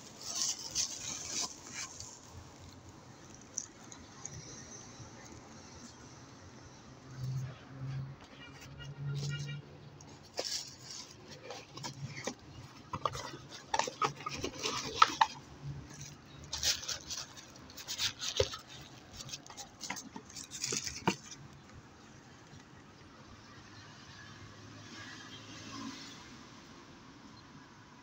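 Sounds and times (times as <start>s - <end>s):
packaging rustling: 10.0s - 21.5s
plastic parts clicking and tapping: 11.3s - 16.6s.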